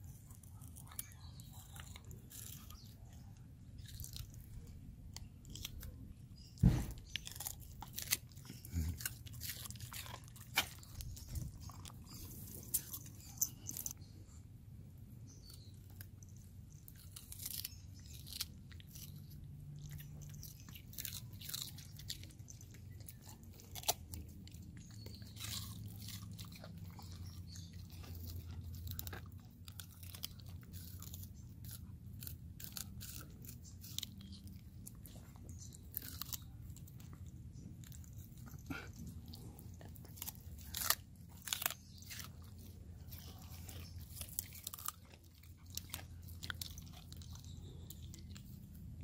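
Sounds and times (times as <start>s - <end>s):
dog crunching vegetables: 0.0s - 14.3s, 15.0s - 49.0s.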